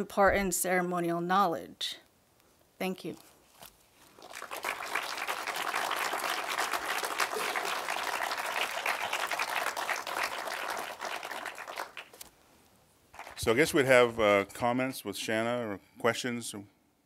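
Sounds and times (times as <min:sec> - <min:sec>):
audience applauding: 0:04.2 - 0:12.2, 0:13.2 - 0:13.7.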